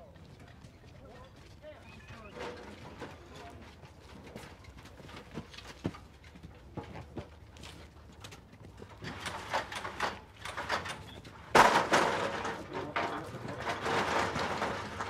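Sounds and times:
clattering: 0:09.0 - 0:15.0.

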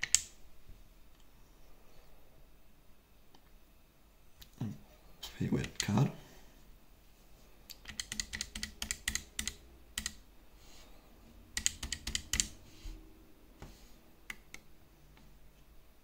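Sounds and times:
plastic keypad keys clicking: 0:07.8 - 0:10.2, 0:11.6 - 0:12.5.

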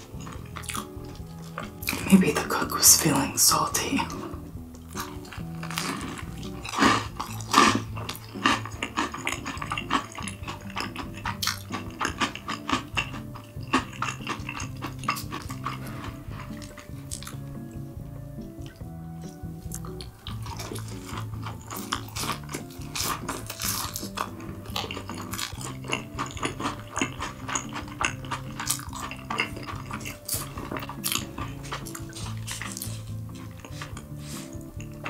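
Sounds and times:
light background music: 0:00.0 - 0:35.0.

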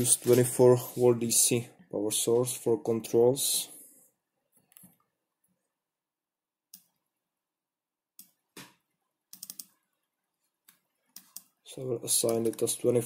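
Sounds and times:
computer mouse clicks: 0:04.5 - 0:05.1, 0:06.7 - 0:07.0, 0:08.2 - 0:09.8, 0:10.6 - 0:11.6, 0:12.2 - 0:12.8.

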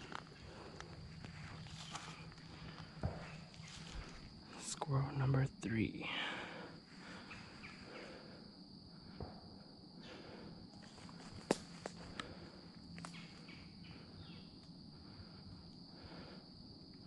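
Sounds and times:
high-pitched insect chorus: 0:00.0 - 0:17.0
twigs snapping: 0:10.8 - 0:13.4.

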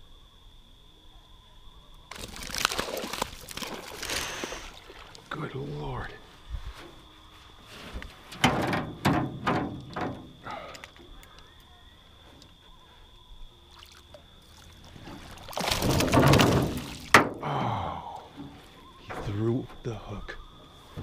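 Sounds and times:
fish splashing at the surface: 0:02.1 - 0:05.3, 0:13.7 - 0:17.1.

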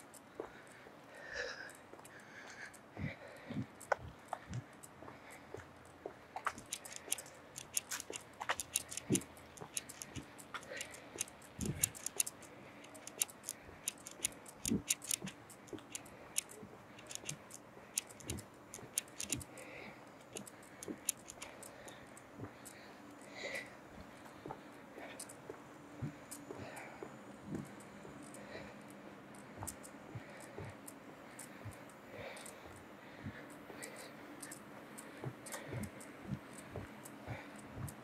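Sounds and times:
sharp clicks and ticks: 0:00.0 - 0:00.8, 0:01.4 - 0:38.0.

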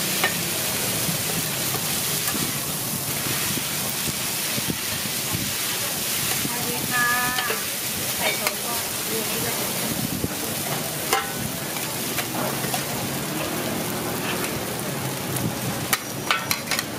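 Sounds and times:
noodles sizzling in a pan: 0:00.0 - 0:16.9
metal clicking on a pan: 0:11.1 - 0:12.8, 0:15.9 - 0:16.9
metal spatula scraping a pan: 0:14.2 - 0:14.6.

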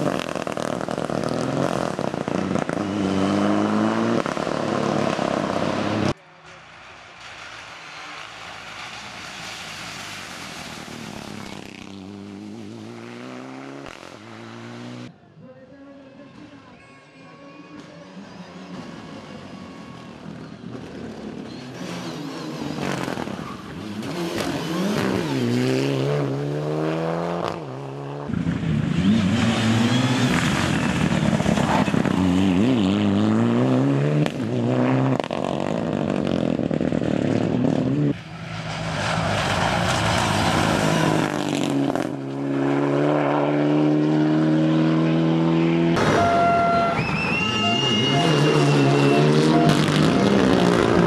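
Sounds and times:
rally car engine revving: 0:00.0 - 0:06.2, 0:10.8 - 0:15.1, 0:20.7 - 0:51.0.

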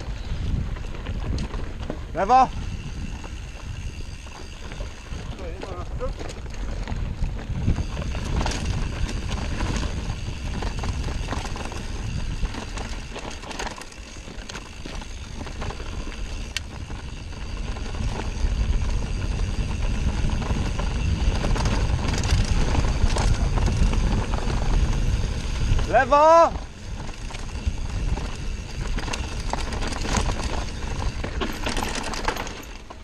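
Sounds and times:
bike tyre rumble: 0:00.0 - 0:33.0
wind noise on microphone: 0:00.0 - 0:33.0
bike rattling knocks: 0:27.1 - 0:33.0.

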